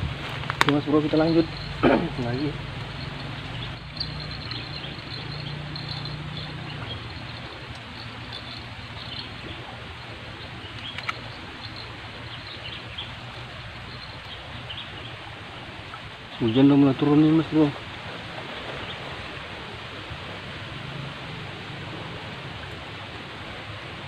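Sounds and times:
low hum: 0.0s - 16.0s
birds chirping: 0.0s - 24.0s
steady outdoor hiss: 0.0s - 24.0s.

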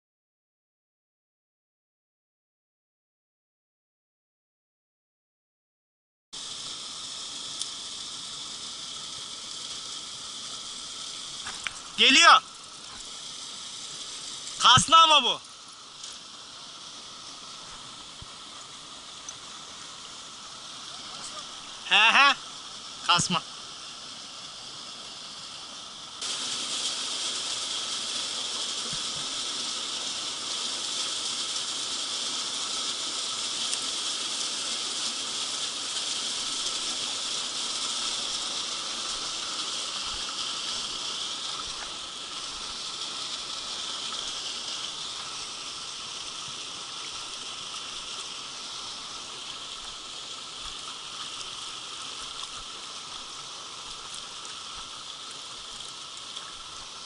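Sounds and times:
stream water over stones: 6.4s - 57.0s.

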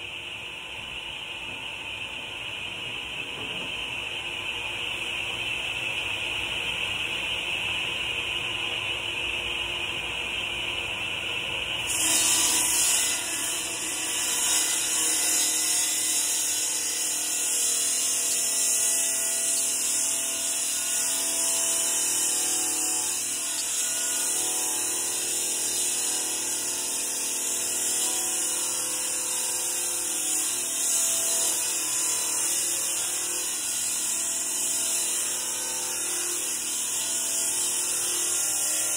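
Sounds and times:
masonry saw blade whining: 11.9s - 38.9s.

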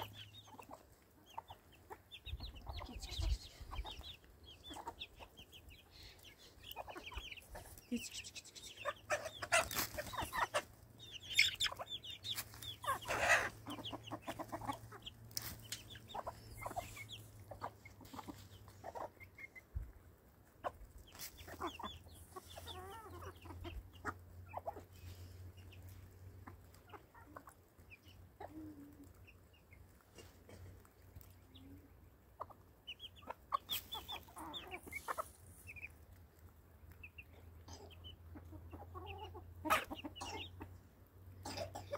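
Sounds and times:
chickens clucking: 0.0s - 41.9s.

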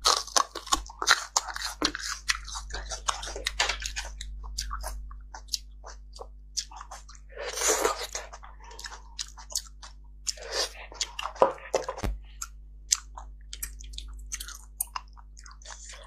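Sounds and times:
wet chewing smacks and clicks: 11.0s - 16.0s.

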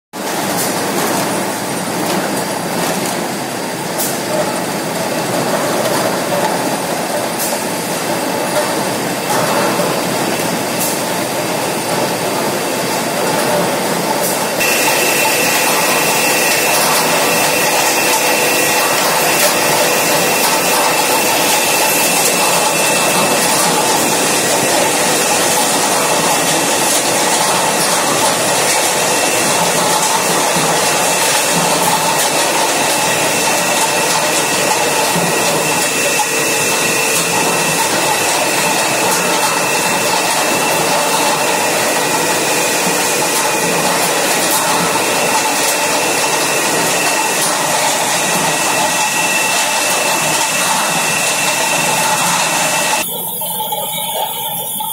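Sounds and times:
high whine: 14.4s - 54.9s
machine turning disc din: 14.6s - 54.9s.

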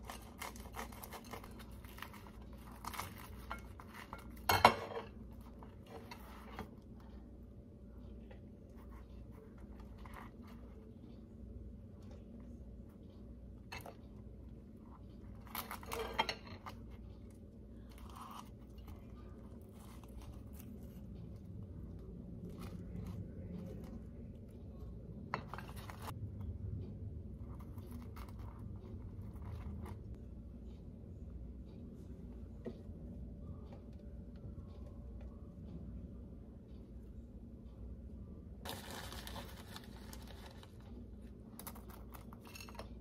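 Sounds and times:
croissant crust crackling: 0.0s - 7.1s, 13.7s - 26.2s, 38.6s - 43.0s
low steady hum: 0.0s - 43.0s.

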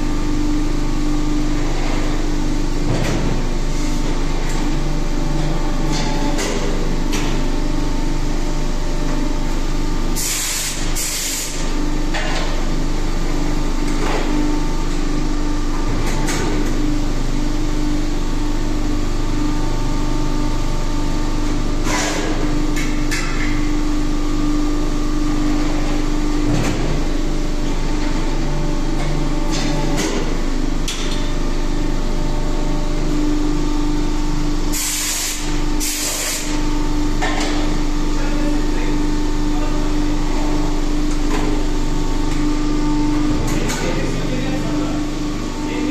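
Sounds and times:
machine humming: 0.0s - 45.9s
air hissing: 34.7s - 36.6s.

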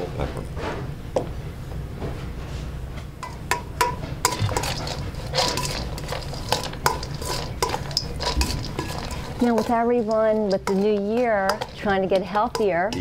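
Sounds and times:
utensil clinking in metal bowl: 3.2s - 13.0s.

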